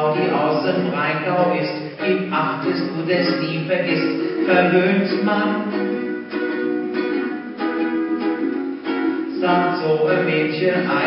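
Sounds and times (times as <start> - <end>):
ukulele strumming chords: 0.0 - 11.0.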